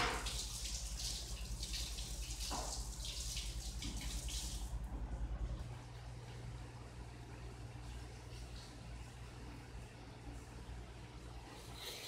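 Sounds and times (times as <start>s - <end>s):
water running and splashing: 0.0s - 4.8s.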